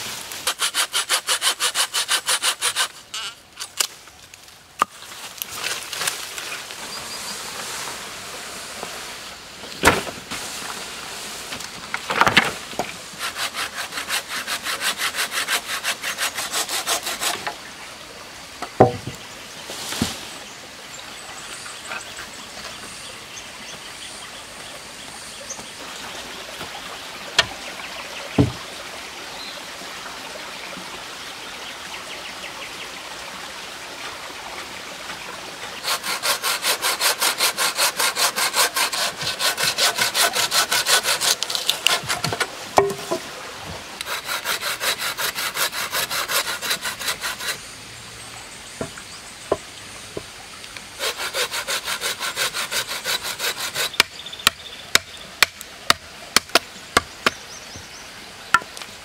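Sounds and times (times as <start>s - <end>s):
saw cutting through log: 0.0s - 3.3s, 13.1s - 17.5s, 35.8s - 42.9s, 44.0s - 47.6s, 51.0s - 56.0s.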